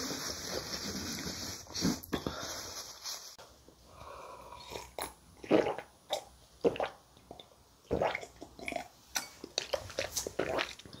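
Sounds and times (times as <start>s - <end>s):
person sipping: 3.9s - 7.0s.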